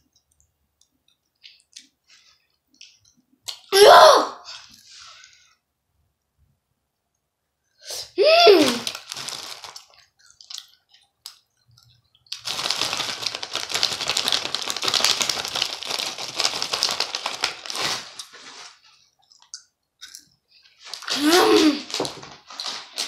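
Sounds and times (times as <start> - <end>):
plastic candy bag crinkling: 8.6 - 10.8, 12.2 - 19.1, 20.8 - 23.0.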